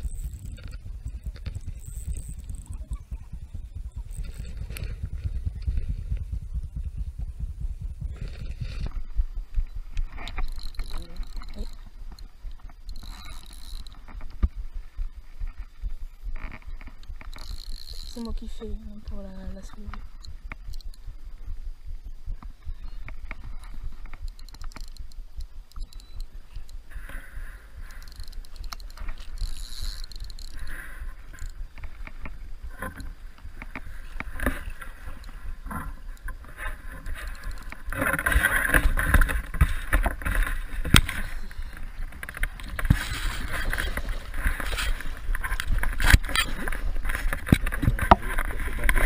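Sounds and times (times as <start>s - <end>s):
water splashing and sloshing: 28.6s - 49.0s.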